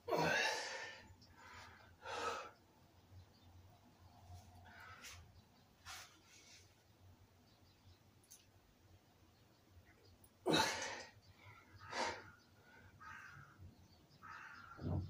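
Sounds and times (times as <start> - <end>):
man breathing hard: 0.1 - 2.6.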